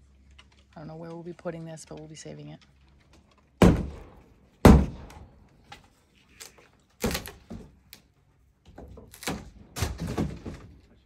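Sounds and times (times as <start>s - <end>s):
sharp knocks and thuds: 3.6s - 5.4s.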